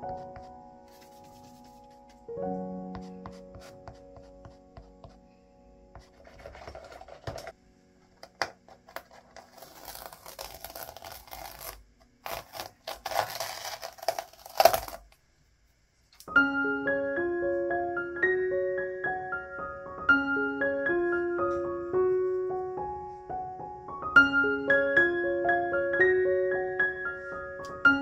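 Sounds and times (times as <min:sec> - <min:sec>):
soft piano music: 0:00.0 - 0:14.7, 0:16.2 - 0:28.0
toothbrush scratching canvas: 0:00.9 - 0:02.2, 0:06.0 - 0:07.5
masking tape peeling: 0:08.6 - 0:15.2.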